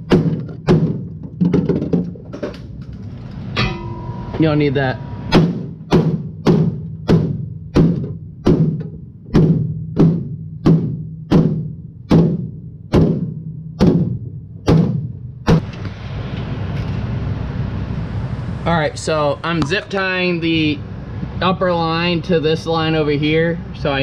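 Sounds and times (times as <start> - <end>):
hammer striking sheet metal: 3.5 - 15.7.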